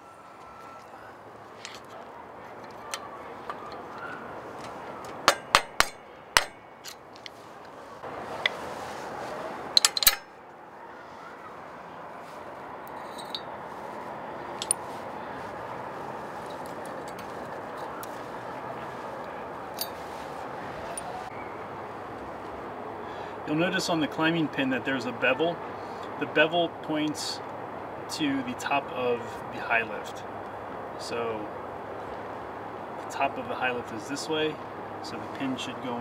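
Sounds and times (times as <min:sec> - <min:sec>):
steady background noise: 0:00.0 - 0:36.0
steel parts clinking: 0:01.6 - 0:02.0, 0:05.2 - 0:07.4, 0:09.7 - 0:10.3, 0:12.9 - 0:13.5, 0:19.7 - 0:20.1.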